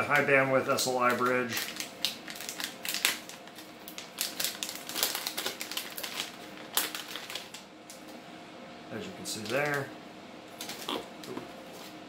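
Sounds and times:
plastic bag crinkling: 0:00.1 - 0:08.0, 0:10.5 - 0:11.4.

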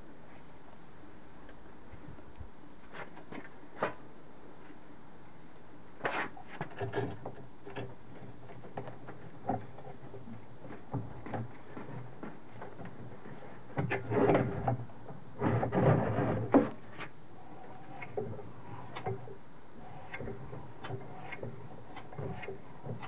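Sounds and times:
metal knocking and scraping: 0:06.4 - 0:23.0.

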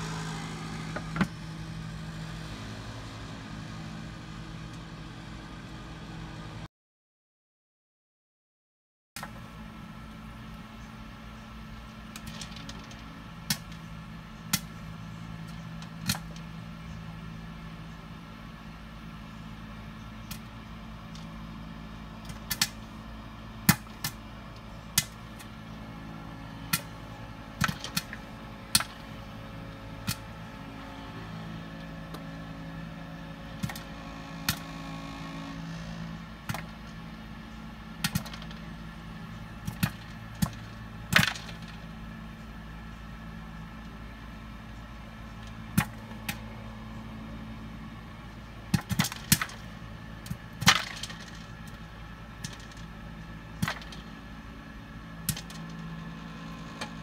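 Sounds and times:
cooker humming: 0:00.0 - 0:06.7, 0:09.3 - 0:57.0
popcorn popping: 0:22.2 - 0:22.8, 0:26.7 - 0:27.0, 0:38.0 - 0:38.6, 0:39.6 - 0:41.8, 0:45.7 - 0:46.4, 0:48.7 - 0:51.8, 0:53.6 - 0:54.2, 0:55.2 - 0:55.8.

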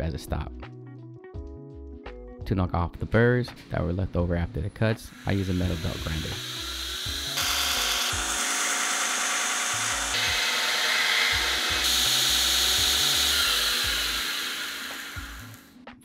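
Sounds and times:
belt grinder grinding steel: 0:05.1 - 0:15.7.

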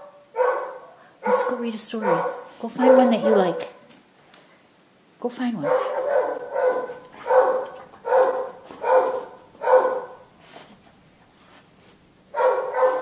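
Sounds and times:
dog barking: 0:00.0 - 0:03.8, 0:05.6 - 0:10.3, 0:12.3 - 0:13.0.

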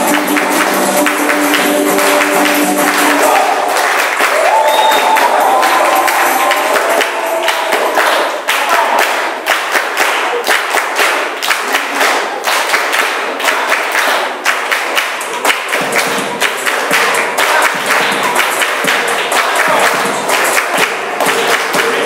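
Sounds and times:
music: 0:00.0 - 0:08.3, 0:14.7 - 0:22.0
people clapping in rhythm: 0:00.0 - 0:22.0.

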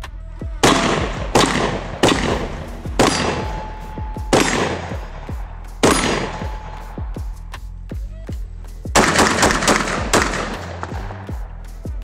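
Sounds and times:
steel target ringing: 0:00.6 - 0:04.9
shotgun shots: 0:00.6 - 0:06.8, 0:09.0 - 0:11.3.

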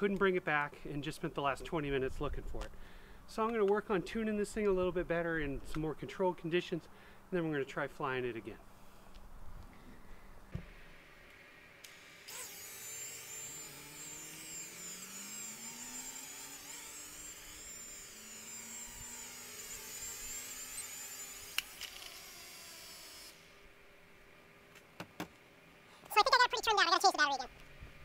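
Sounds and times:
toy drone motors buzzing: 0:11.8 - 0:23.5.

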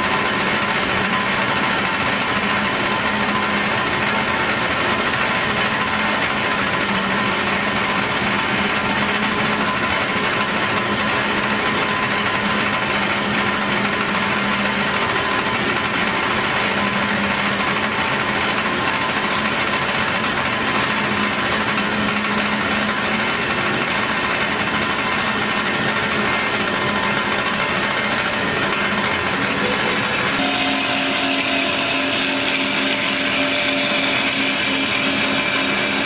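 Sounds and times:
band saw cutting steel tube: 0:00.0 - 0:36.0
motor hum: 0:13.2 - 0:36.0.

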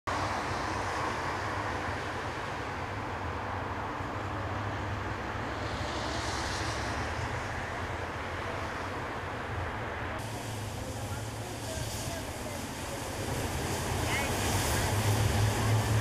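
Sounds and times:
city traffic rumble: 0:00.1 - 0:16.0
high hiss: 0:10.2 - 0:16.0.

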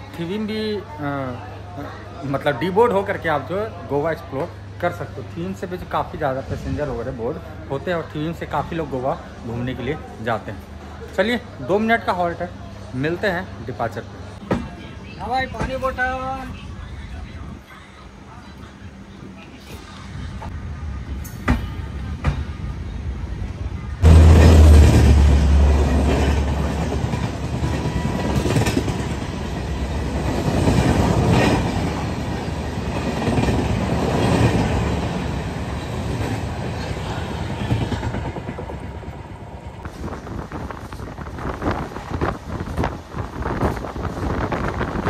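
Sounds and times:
deep train rumble: 0:04.2 - 0:45.0
train wheels clattering on track: 0:24.1 - 0:39.0.

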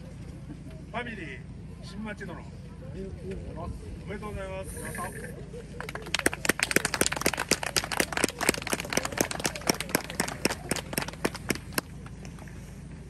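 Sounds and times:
people clapping: 0:05.8 - 0:12.4.

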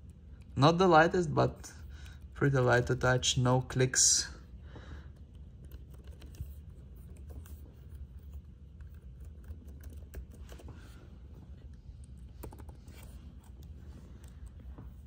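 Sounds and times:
fingers tapping laptop keys: 0:05.1 - 0:15.0.

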